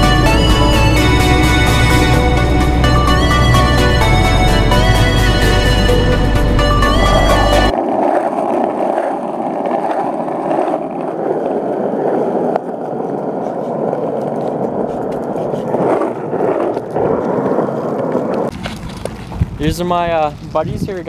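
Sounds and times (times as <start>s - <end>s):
skateboard wheels rolling on asphalt: 6.6s - 21.0s.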